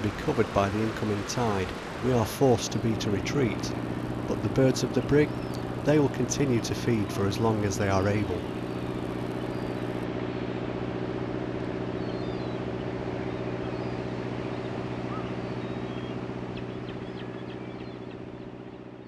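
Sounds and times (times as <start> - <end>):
boat engine droning: 0.0 - 19.0
faint high bird chirps: 8.3 - 9.9, 11.9 - 18.2.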